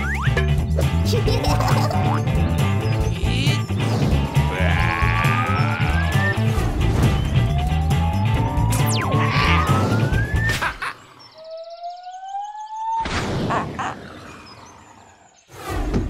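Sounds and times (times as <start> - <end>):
cartoon background music: 0.0 - 10.9.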